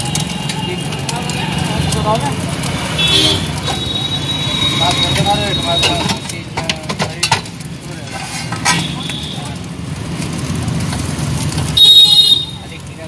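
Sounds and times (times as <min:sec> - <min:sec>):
street traffic hum: 0:00.0 - 0:13.0
metal spatula scraping frying pan: 0:03.5 - 0:09.1.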